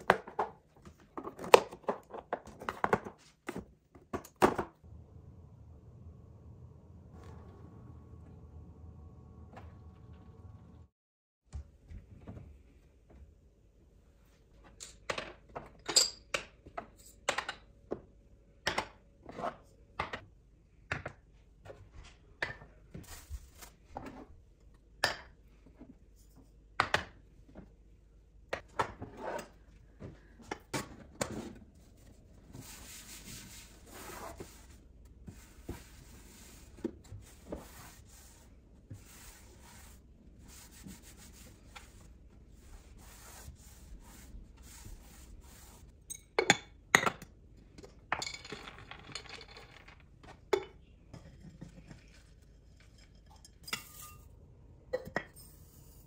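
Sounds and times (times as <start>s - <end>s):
cloth wiping shelf: 31.8s - 45.9s.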